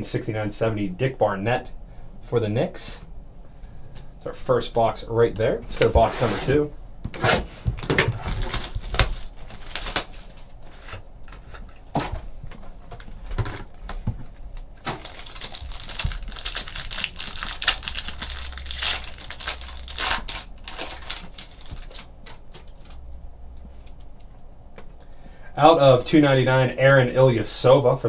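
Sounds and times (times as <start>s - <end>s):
shrink wrap tearing and crumpling: 7.8s - 11.0s, 14.8s - 23.0s.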